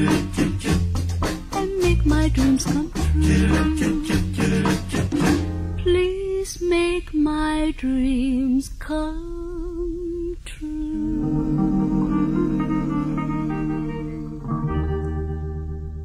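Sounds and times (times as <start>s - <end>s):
band playing: 0.0s - 5.8s, 11.1s - 16.0s
woman singing with vibrato: 1.6s - 4.3s, 5.8s - 14.5s
light guitar backing: 11.2s - 16.0s.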